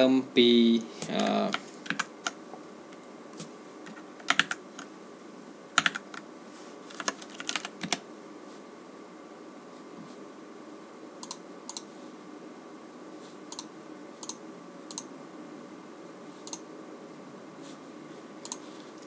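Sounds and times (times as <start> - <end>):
steady low hum: 0.0 - 19.0
keyboard keys clicking: 3.9 - 4.9, 5.8 - 6.2, 6.9 - 8.0.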